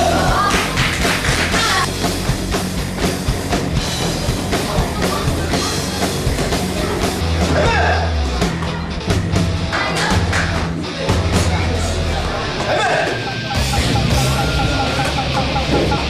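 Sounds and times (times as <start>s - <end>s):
rock music: 0.0s - 16.0s.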